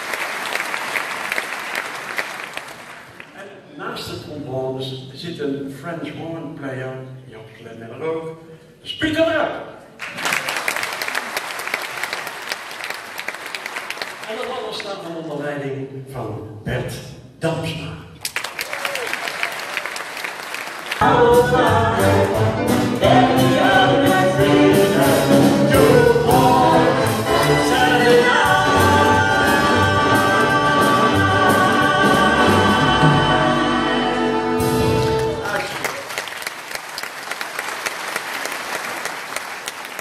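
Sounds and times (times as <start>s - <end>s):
audience applause: 0.0s - 3.3s, 10.0s - 14.9s, 18.2s - 21.0s, 35.2s - 40.0s
big band with strings playing: 20.6s - 36.2s.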